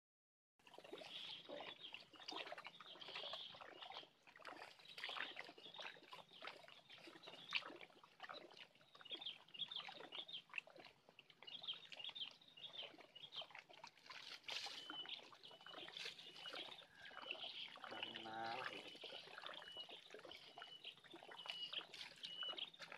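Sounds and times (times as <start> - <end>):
water lapping on rocks: 0.6 - 22.9
small birds chirping: 0.9 - 10.8, 11.4 - 22.9.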